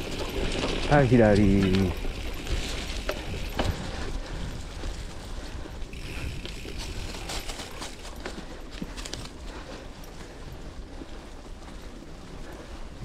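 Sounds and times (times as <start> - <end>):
freewheel ticking: 0.0 - 8.2
bike rattling over bumps: 0.0 - 13.0
bike tyres on dirt and leaves: 0.0 - 13.0.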